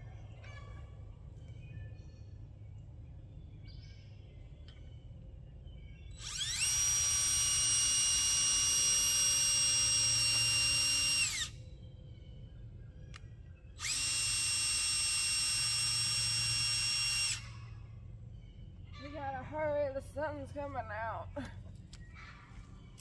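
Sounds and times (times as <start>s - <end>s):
cordless drill motor whine: 6.2s - 11.6s, 13.8s - 17.9s.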